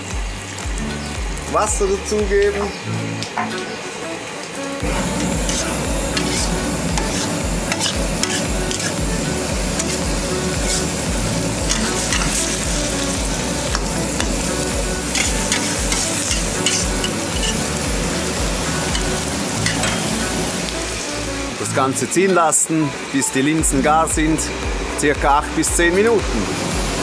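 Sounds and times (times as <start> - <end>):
curry sizzling and bubbling: 0.0 - 23.6
low pulsing rumble: 4.8 - 20.9
metal spatula scraping a wok: 4.9 - 9.0, 9.8 - 10.9, 11.7 - 14.5, 15.1 - 17.8, 18.9 - 20.2.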